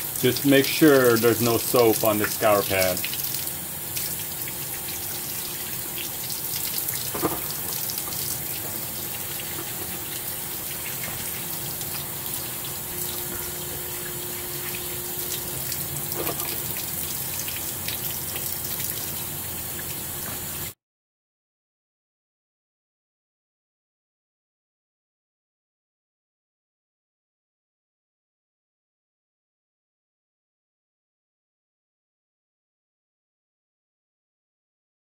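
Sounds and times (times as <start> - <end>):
tap water running into sink: 0.0 - 20.8.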